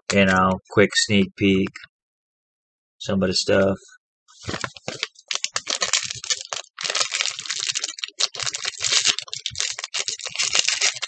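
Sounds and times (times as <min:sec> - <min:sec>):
plastic bag crinkling: 0:04.4 - 0:11.0.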